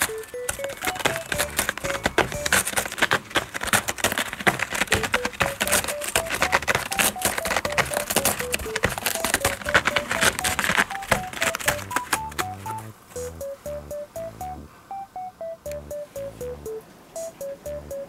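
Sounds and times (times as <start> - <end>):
plinking background tune: 0.0 - 2.7, 4.9 - 18.0
cat scratching cardboard: 0.0 - 13.4.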